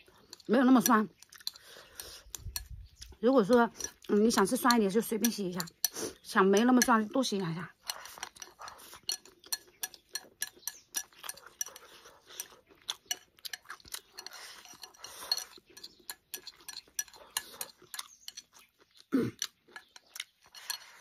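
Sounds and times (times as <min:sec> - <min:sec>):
chewing: 0:00.0 - 0:21.0
chopsticks clicking on porcelain bowl: 0:02.3 - 0:18.6.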